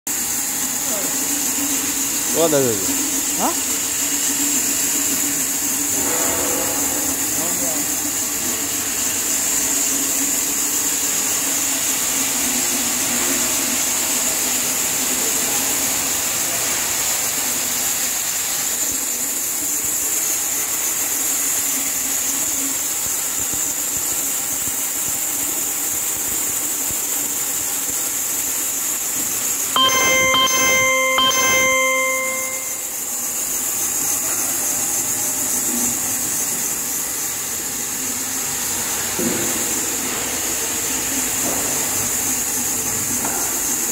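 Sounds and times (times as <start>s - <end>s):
ringing tone: 29.8s - 33.1s.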